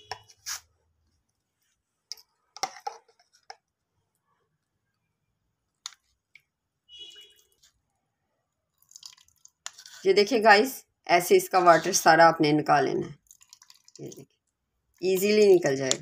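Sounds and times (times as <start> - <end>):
spoon scraping plastic strainer: 0.0 - 0.7, 8.9 - 10.4.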